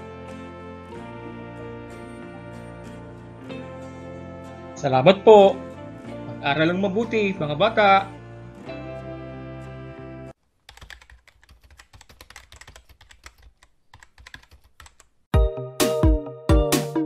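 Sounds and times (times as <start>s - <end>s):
background music chord: 0.0s - 10.4s, 15.4s - 17.0s
typing on a computer keyboard: 10.6s - 15.1s
electronic music with strong beat: 15.4s - 17.0s.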